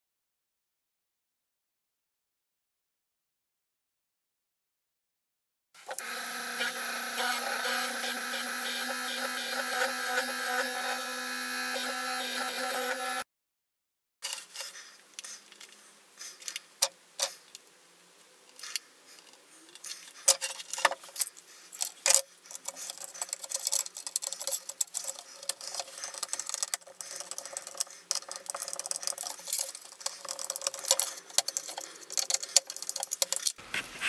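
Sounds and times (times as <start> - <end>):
small hard objects rattling: 19.8 - 33.6.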